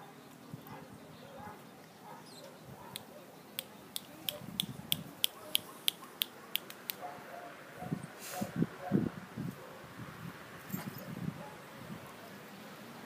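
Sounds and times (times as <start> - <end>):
person making sharp clicks: 2.9 - 7.0.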